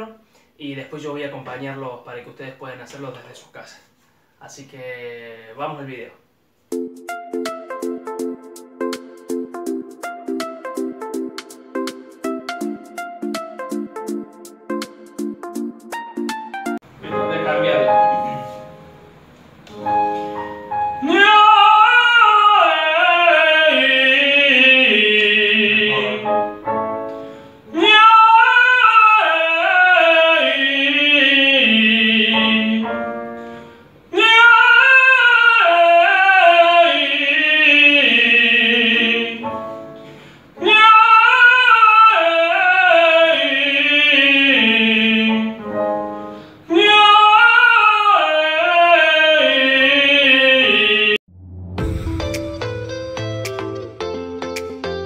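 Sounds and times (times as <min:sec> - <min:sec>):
piano chords: 0:06.7 - 0:22.2, 0:25.2 - 0:27.8, 0:32.3 - 0:33.6, 0:39.3 - 0:40.3, 0:45.3 - 0:46.5, 0:50.8 - 0:55.0
man singing vocal scales: 0:21.0 - 0:26.6, 0:27.7 - 0:33.0, 0:34.1 - 0:39.6, 0:40.6 - 0:45.7, 0:46.7 - 0:51.2.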